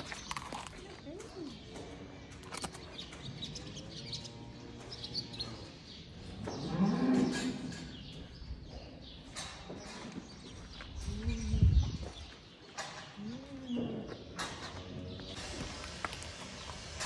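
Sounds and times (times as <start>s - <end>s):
cattle mooing: 6.5s - 7.6s.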